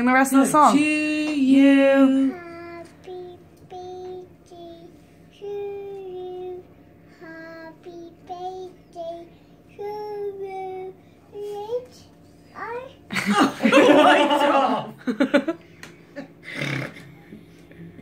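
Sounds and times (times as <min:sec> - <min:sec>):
toddler singing wordless notes: 0:02.3 - 0:12.9.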